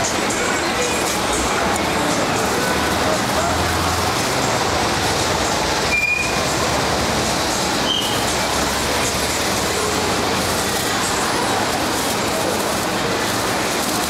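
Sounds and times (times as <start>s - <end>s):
passing vehicles rumbling: 0.0s - 14.0s.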